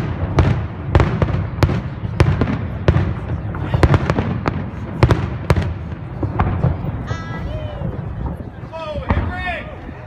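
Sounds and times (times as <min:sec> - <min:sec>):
fireworks bursting: 0:00.0 - 0:10.0.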